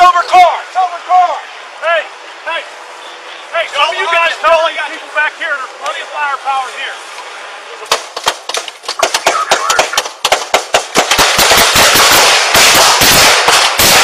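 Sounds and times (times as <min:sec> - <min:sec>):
gunshots: 0:07.9 - 0:14.0.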